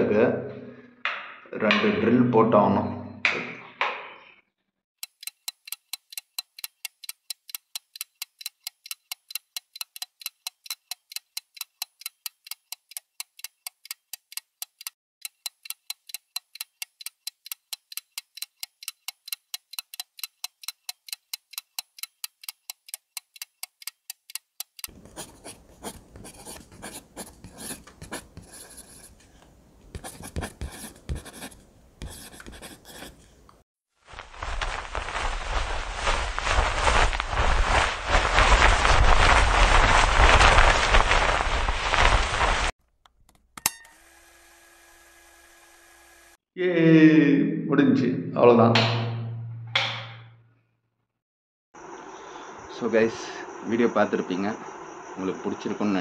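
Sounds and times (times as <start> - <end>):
clock ticking: 5.0 - 27.4
rustling and scraping: 34.1 - 42.7.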